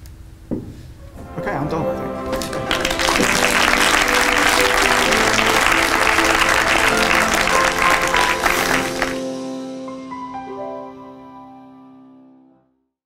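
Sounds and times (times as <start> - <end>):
background music with held tones: 1.0 - 12.7
audience applauding: 2.1 - 9.4.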